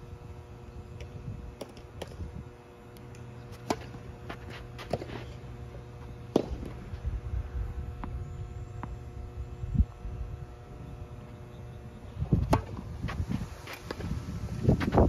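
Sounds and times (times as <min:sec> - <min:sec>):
faint steady hum: 0:00.0 - 0:15.0
tennis ball bouncing on court: 0:03.5 - 0:05.1, 0:12.4 - 0:12.9
tennis ball struck by racket: 0:12.4 - 0:12.9.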